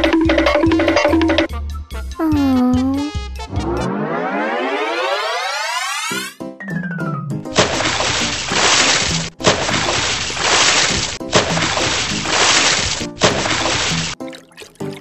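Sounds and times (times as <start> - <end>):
background music: 0.0 - 15.0
cartoon water splashing: 7.6 - 15.0.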